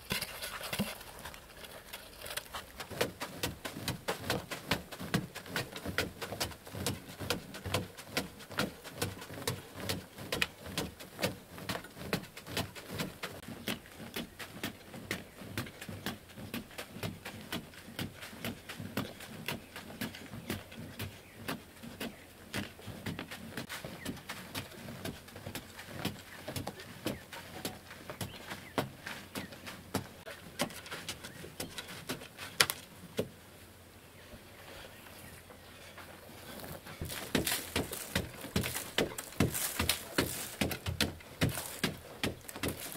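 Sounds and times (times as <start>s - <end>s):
digging tool striking clay: 37.0s - 42.9s.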